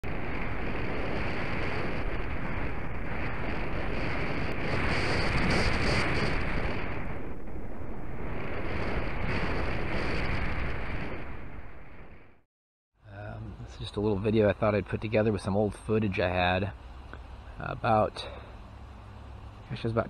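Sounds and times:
wind blowing in gusts: 0:00.0 - 0:12.4.

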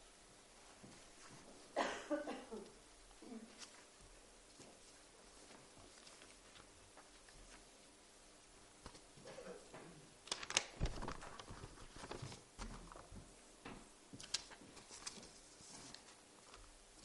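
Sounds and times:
paper rustling: 0:03.5 - 0:07.9, 0:08.8 - 0:09.2, 0:10.2 - 0:13.3, 0:14.1 - 0:17.0.

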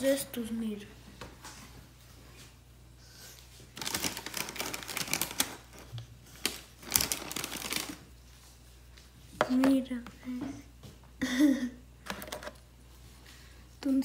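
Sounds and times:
packaging rustling and crinkling: 0:03.7 - 0:08.1.

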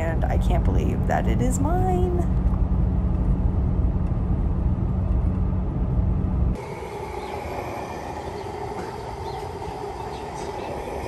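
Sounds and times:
road rumble inside truck cab: 0:00.0 - 0:07.3
steady hum at gas pump: 0:00.0 - 0:11.0.

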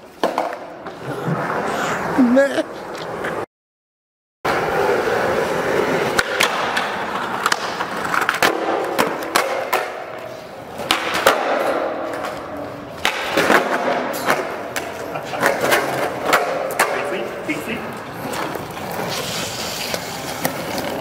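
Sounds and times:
skateboard clacking on ground: 0:00.0 - 0:01.0, 0:05.7 - 0:21.0
skateboard wheels rolling on concrete: 0:00.0 - 0:03.5, 0:04.5 - 0:21.0.

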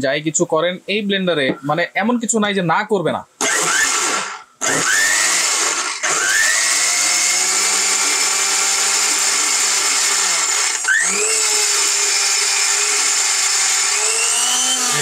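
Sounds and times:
blender motor grinding: 0:03.4 - 0:15.0.

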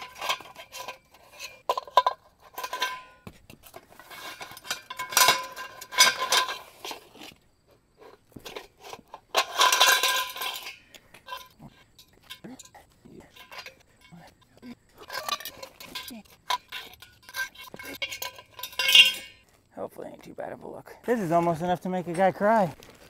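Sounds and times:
metal bars clanking and rattling: 0:00.0 - 0:07.3, 0:08.0 - 0:19.4
metal set down on concrete: 0:00.0 - 0:07.4, 0:08.0 - 0:12.4, 0:13.3 - 0:14.1, 0:15.0 - 0:19.6.

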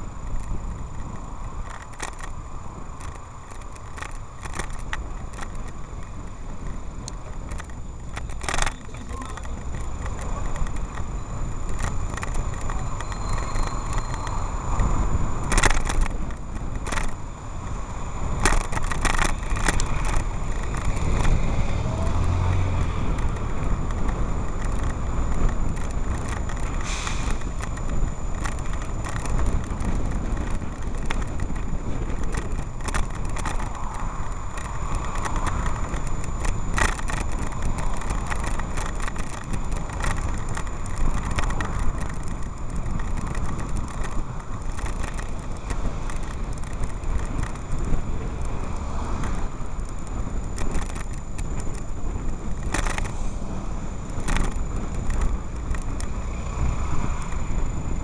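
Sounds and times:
car traffic: 0:00.0 - 0:58.0
wind and road noise: 0:00.0 - 0:58.0
short clicks and rattles: 0:03.0 - 0:11.1.

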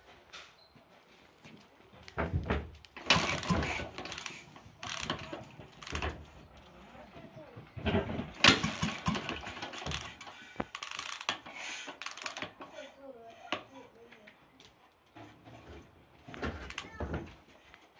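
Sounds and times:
engine being kick-started: 0:08.4 - 0:12.1.

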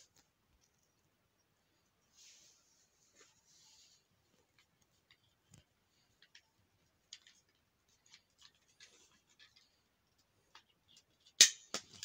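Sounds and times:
plastic toy clicks and rattles: 0:07.0 - 0:09.7.

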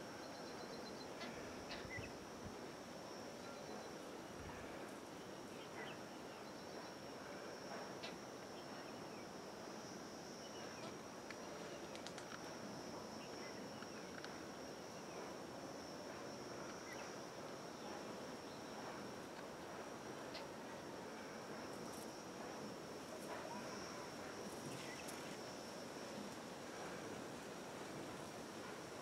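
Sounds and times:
faint outdoor hiss: 0:00.0 - 0:29.0
faint ticks and chirps: 0:00.0 - 0:29.0
high-pitched insect drone: 0:05.5 - 0:29.0.

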